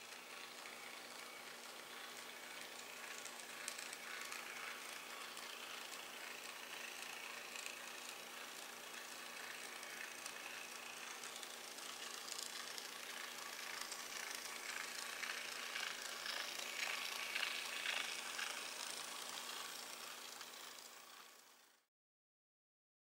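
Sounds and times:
wheels clicking on track: 0.0 - 21.8
model train motor whine: 0.0 - 21.9.

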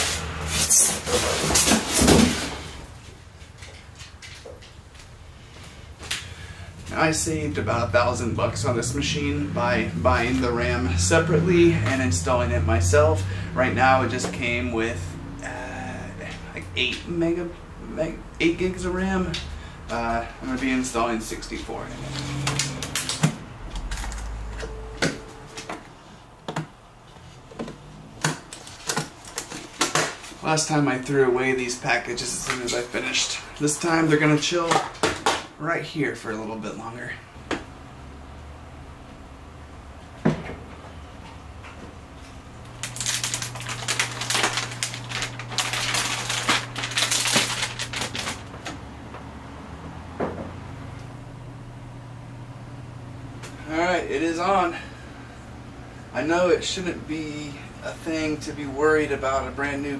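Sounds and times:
plastic wrap crinkling: 42.7 - 48.7.

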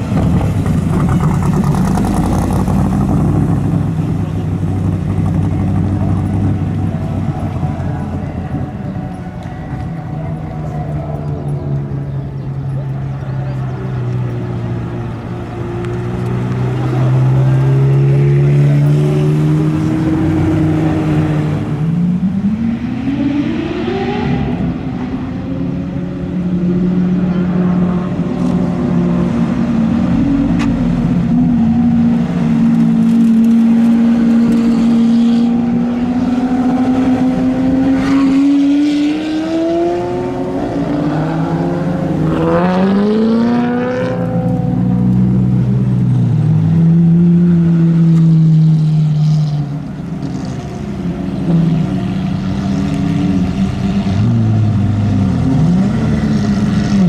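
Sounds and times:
sports car engines running: 0.0 - 57.0.

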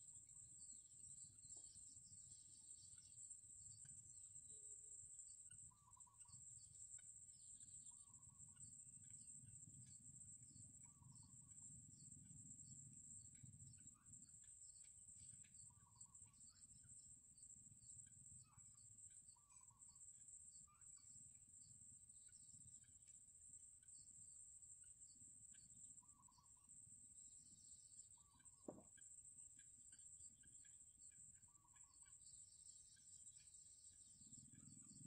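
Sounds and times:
insect drone: 0.0 - 35.0
soft short bird calls: 31.4 - 32.3.

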